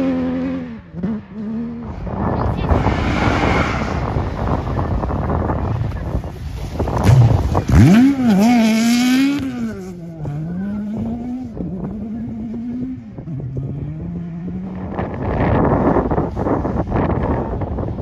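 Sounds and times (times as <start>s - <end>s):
rally car engine revving: 0.0s - 17.9s
rushing noise: 1.8s - 8.1s.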